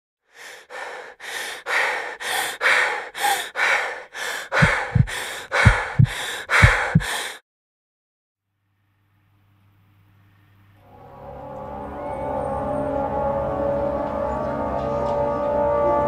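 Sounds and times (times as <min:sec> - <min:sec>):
heavy rhythmic panting: 0:00.4 - 0:07.4
low thumps: 0:04.5 - 0:07.2.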